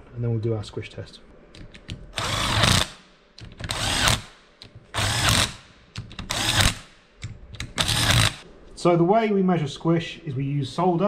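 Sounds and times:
cordless drill whirring: 0:02.2 - 0:03.0, 0:03.7 - 0:04.3, 0:05.0 - 0:05.6, 0:06.3 - 0:06.9, 0:07.8 - 0:08.4.

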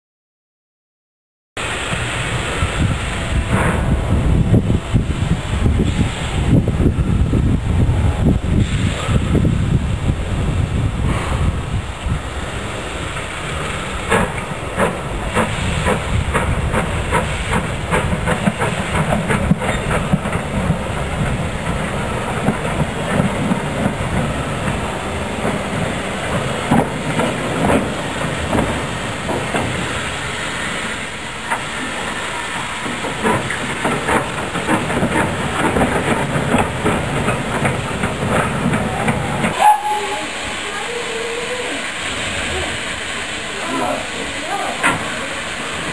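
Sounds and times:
steam hissing: 0:01.6 - 0:45.9
locomotive wheels knocking on track: 0:13.2 - 0:30.2, 0:32.8 - 0:39.6.

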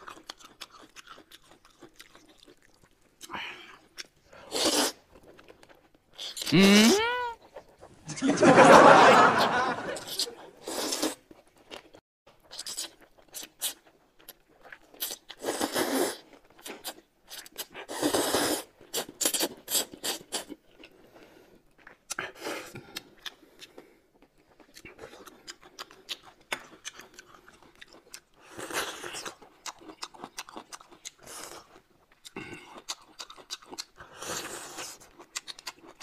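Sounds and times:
chewing and mouth clicks: 0:00.0 - 0:06.5, 0:10.0 - 0:18.2, 0:18.8 - 0:36.0
noodles slurped: 0:10.0 - 0:11.3, 0:14.8 - 0:20.6.

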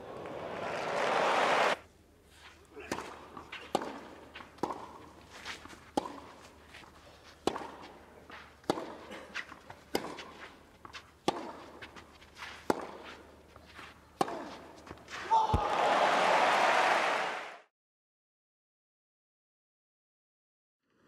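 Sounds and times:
racket striking tennis ball: 0:02.8 - 0:15.8.

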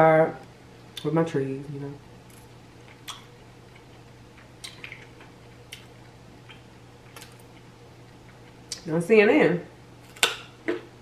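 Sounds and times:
chewing mouth sounds: 0:02.8 - 0:08.8.

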